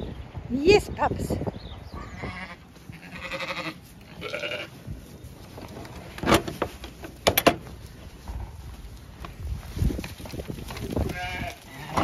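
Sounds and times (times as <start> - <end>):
sheep bleating: 2.0 - 4.8, 11.1 - 12.0.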